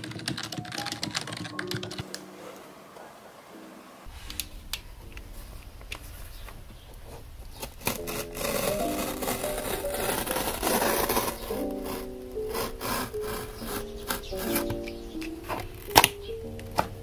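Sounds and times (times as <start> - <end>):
lo-fi instrumental music: 0.0 - 17.0
box cutter slicing packing tape: 7.6 - 14.9.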